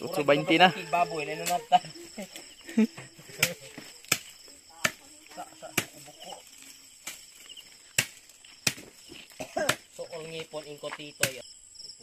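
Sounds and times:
crickets chirring: 0:00.0 - 0:12.0
grass stems being chopped: 0:03.3 - 0:11.4.

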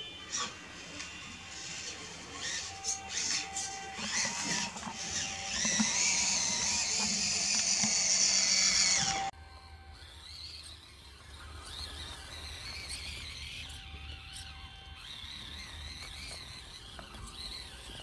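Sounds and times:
toy truck electric motor whining: 0:00.0 - 0:18.0.

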